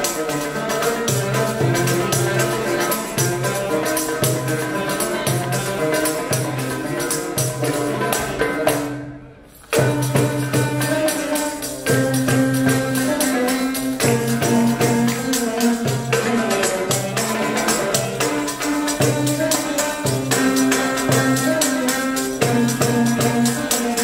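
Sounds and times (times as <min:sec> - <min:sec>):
oud: 0:00.0 - 0:24.0
sharp percussion hits: 0:00.0 - 0:24.0
violin: 0:00.0 - 0:24.0.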